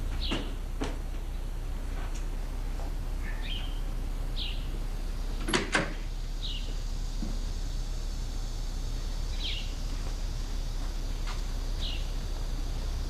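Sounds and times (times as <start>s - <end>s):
small bird chirping: 3.2s - 4.8s, 6.4s - 6.8s, 9.3s - 9.8s, 11.8s - 12.2s.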